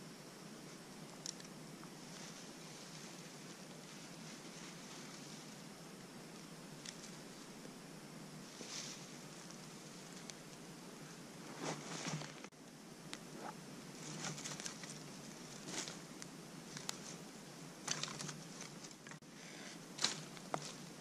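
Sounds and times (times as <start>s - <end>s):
campfire crackling: 0.0s - 21.0s
sticks rustling: 8.5s - 10.4s, 11.4s - 12.5s, 13.4s - 17.2s, 17.8s - 19.2s, 20.0s - 21.0s.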